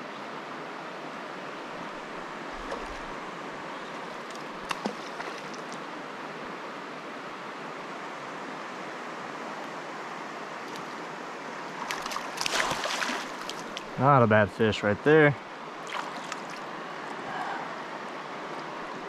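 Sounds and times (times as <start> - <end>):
river rushing over rocks: 0.4 - 14.0.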